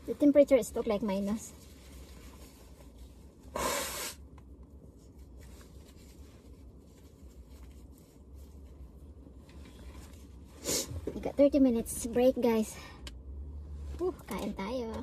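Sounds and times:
tissue rustling: 0:00.0 - 0:03.5, 0:04.8 - 0:10.7
low steady hum: 0:00.0 - 0:15.0
person blowing nose: 0:03.5 - 0:04.2, 0:10.6 - 0:11.0.

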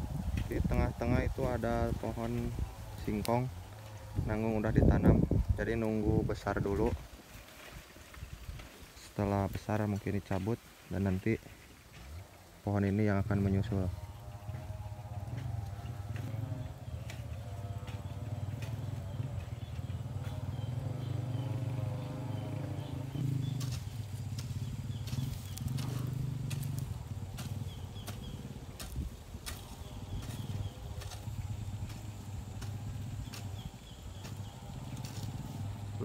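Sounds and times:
motor engine running: 0:13.2 - 0:36.0.

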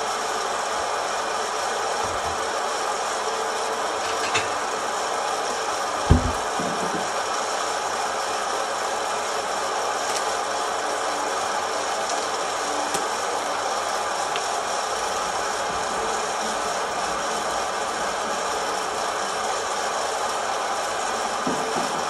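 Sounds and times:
coffee roaster fan rushing: 0:00.0 - 0:22.0
low thump: 0:06.1 - 0:07.0.

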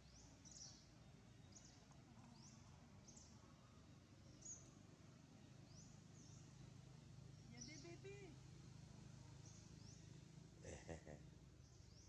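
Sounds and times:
small bird chirping: 0:00.0 - 0:08.4.

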